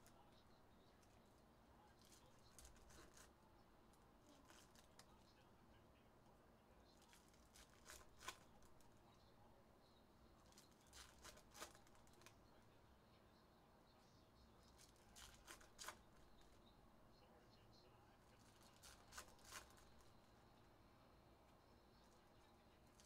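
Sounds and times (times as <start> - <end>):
foil wrappers tearing and crinkling: 7.0 - 8.8, 10.5 - 12.3, 14.8 - 16.0, 18.5 - 19.9.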